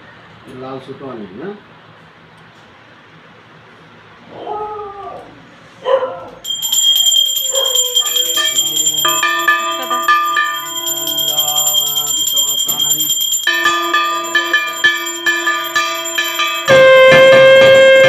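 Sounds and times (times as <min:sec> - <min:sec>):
brass hand bell ringing: 0:06.4 - 0:18.0
held tones shifting in pitch: 0:06.5 - 0:18.0.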